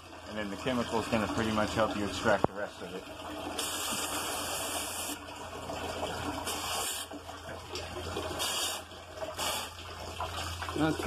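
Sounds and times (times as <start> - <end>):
hose water spraying on metal coil: 6.4 - 7.1, 8.3 - 9.8.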